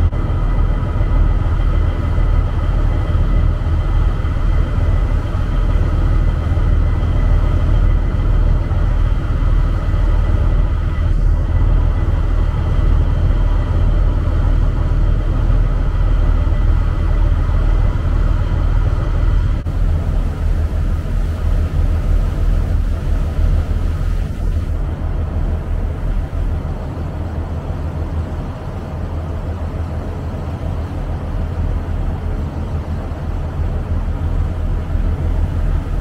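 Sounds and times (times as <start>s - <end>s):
faint engine whine: 0.0s - 36.0s
ferry engine rumble: 0.0s - 36.0s.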